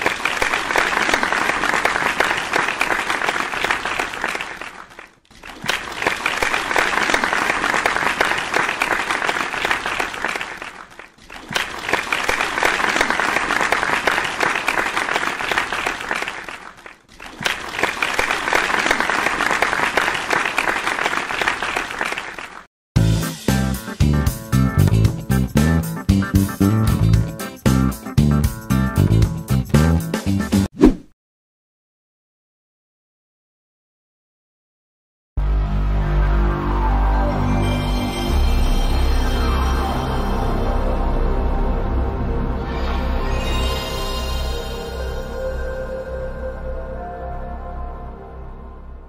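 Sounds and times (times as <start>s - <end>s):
crowd applause: 0.0s - 22.7s.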